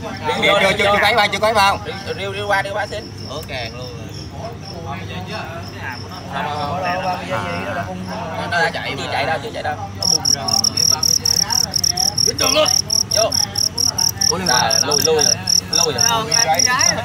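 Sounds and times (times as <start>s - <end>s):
cricket chirping: 0.1s - 17.0s.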